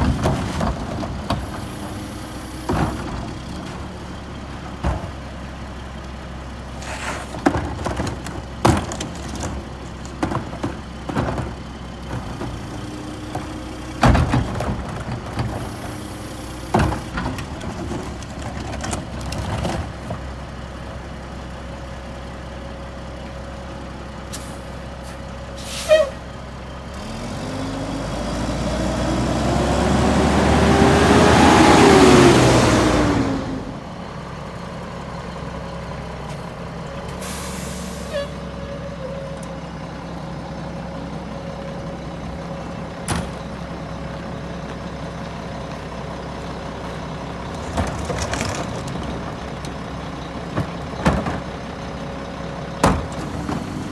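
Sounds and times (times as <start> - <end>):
garbage truck engine: 0.0 - 53.9
air brake blast: 24.3 - 26.2, 37.1 - 38.5.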